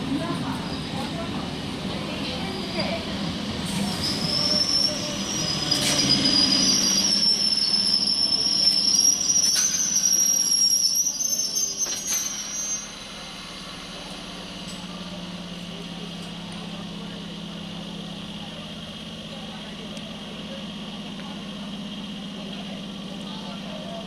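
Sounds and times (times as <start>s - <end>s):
train wheels and brakes squealing: 2.2s - 16.4s.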